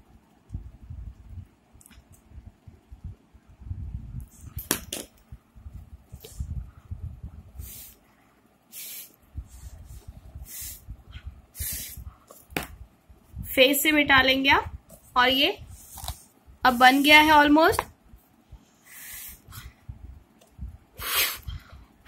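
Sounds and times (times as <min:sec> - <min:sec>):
breath puffs through a straw: 0:11.6 - 0:12.1, 0:18.8 - 0:19.8, 0:21.0 - 0:21.8
book being handled rumble: 0:14.9 - 0:17.0.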